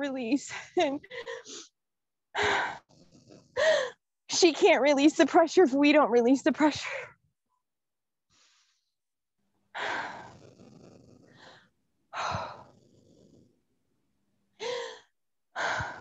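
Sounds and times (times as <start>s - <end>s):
person breathing heavily: 2.4s - 4.0s, 9.8s - 13.3s, 14.6s - 16.0s.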